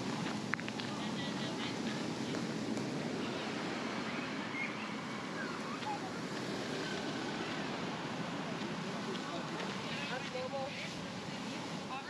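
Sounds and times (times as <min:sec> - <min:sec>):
rushing outdoor ambience: 0:00.0 - 0:12.0
faint bird chirps: 0:04.0 - 0:05.8.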